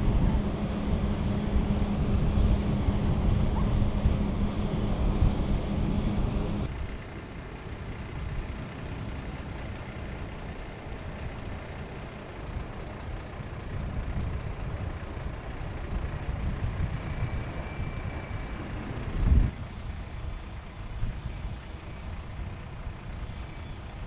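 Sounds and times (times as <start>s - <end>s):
faint high whine: 0.0s - 6.7s, 16.0s - 20.3s
heavy vehicle engine idling: 0.0s - 24.0s.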